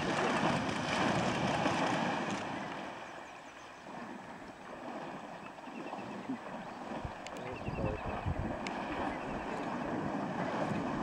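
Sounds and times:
bear splashing through water: 0.0s - 3.0s.

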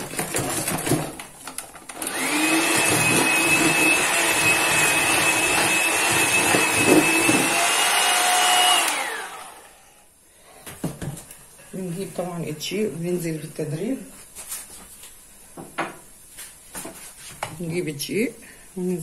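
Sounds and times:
electric hand mixer whining: 1.9s - 10.0s.

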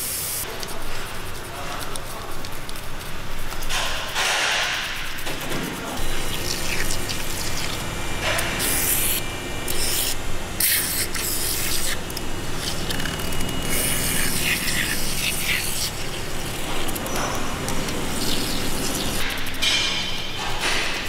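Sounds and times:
aerosol can spraying: 8.6s - 12.0s.

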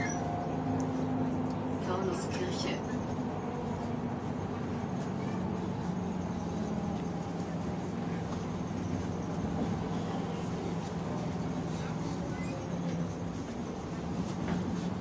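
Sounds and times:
vehicle interior drone: 0.0s - 15.0s.

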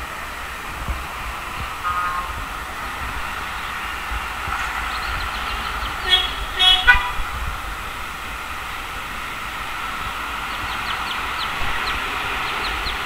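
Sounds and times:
steady hiss: 0.0s - 13.0s
loud multi-pitched calls: 1.8s - 2.8s, 3.4s - 7.2s.

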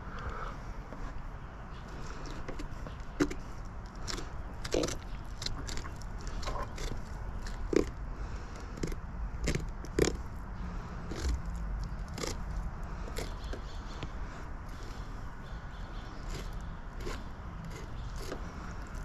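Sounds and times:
knife cutting through scaly hide: 3.2s - 7.9s, 11.1s - 13.4s, 16.2s - 19.0s.

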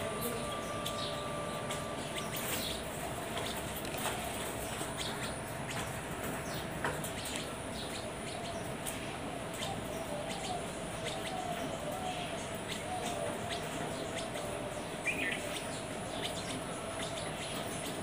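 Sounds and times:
faint steady hum: 0.0s - 18.0s
sparrows chirping: 0.0s - 18.0s.

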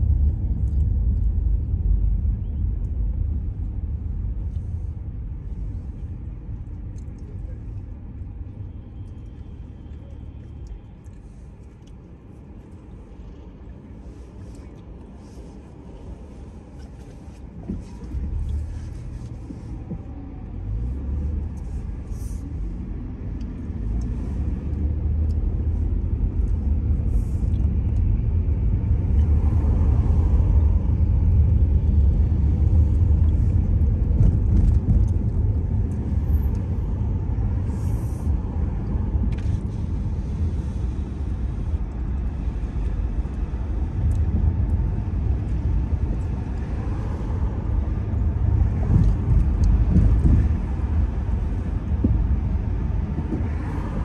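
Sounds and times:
car engine and tyre rumble: 0.0s - 54.0s.

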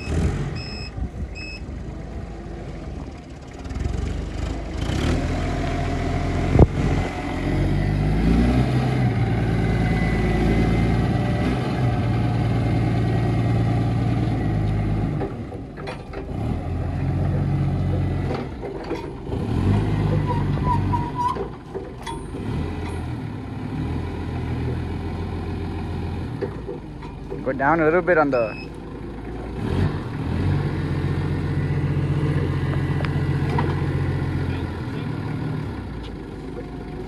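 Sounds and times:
reversing alarm beeping: 0.0s - 1.7s, 28.3s - 28.8s
heavy vehicle engine running: 0.0s - 37.0s.

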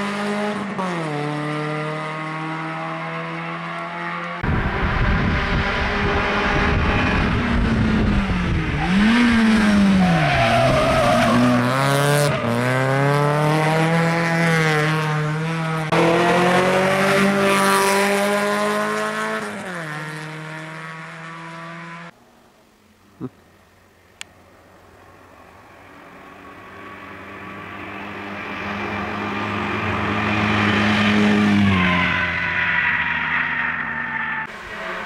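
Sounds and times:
car engine at full throttle: 0.0s - 22.2s.

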